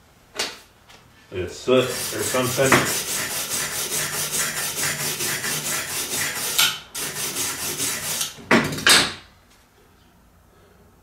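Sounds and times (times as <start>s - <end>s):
wire brush scraping steel: 1.8s - 8.4s.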